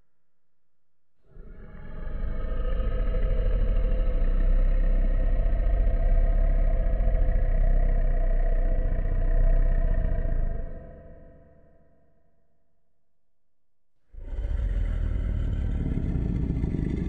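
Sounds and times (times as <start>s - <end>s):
deep fluttering rumble: 14.2s - 17.0s.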